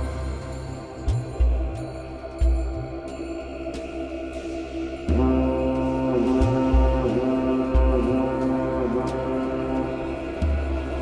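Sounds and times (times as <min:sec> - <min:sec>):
low bass notes: 0:00.0 - 0:11.0
sustained chords: 0:00.0 - 0:11.0.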